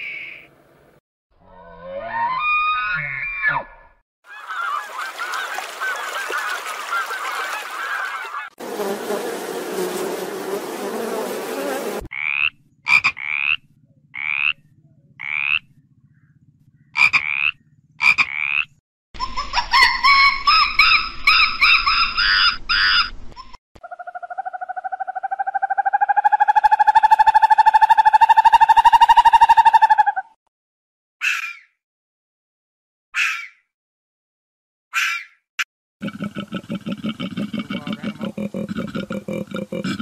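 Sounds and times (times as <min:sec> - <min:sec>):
frog croaking: 0:12.1 - 0:18.8
monkeys making shrill calls: 0:19.2 - 0:23.1, 0:31.2 - 0:31.7.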